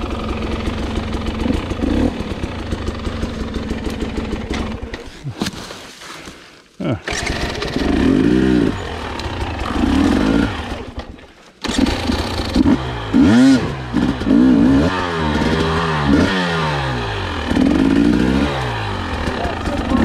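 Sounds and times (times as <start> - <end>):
dirt bike engine revving: 0.0 - 5.2, 6.9 - 20.0.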